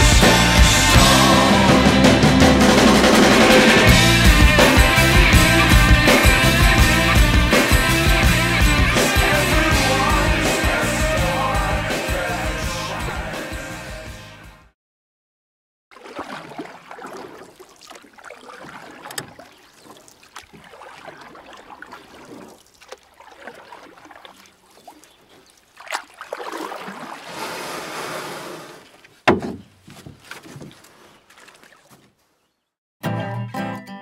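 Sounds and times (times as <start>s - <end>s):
water sloshing and splashing: 15.9s - 32.5s
sharp knocks: 29.2s - 30.2s.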